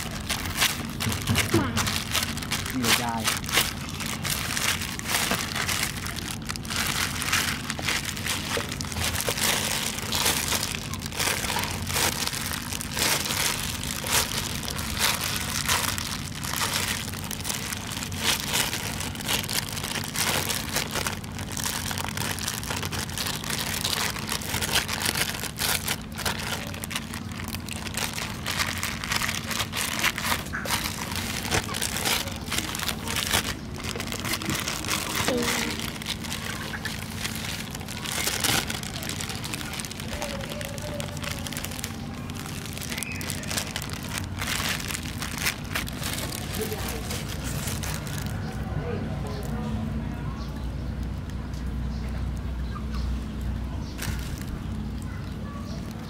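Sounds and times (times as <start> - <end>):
plastic bag crinkling: 0.0 - 49.6, 53.9 - 56.0
low steady hum: 0.0 - 56.0.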